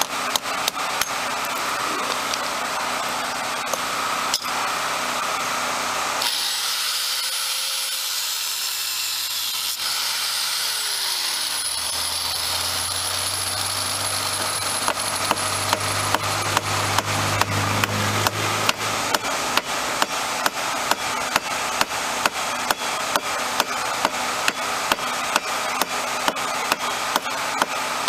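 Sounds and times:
electric grinder grinding metal: 0:00.0 - 0:28.0
hammer tapping on chisel: 0:14.9 - 0:27.8.

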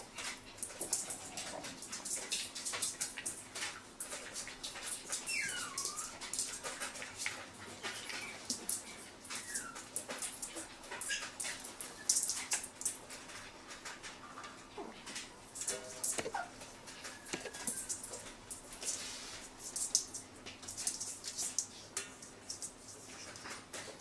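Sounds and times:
puppy whimpering: 0:05.2 - 0:06.6, 0:09.3 - 0:09.9, 0:16.2 - 0:17.9
licking and nibbling smacks: 0:15.1 - 0:18.9.

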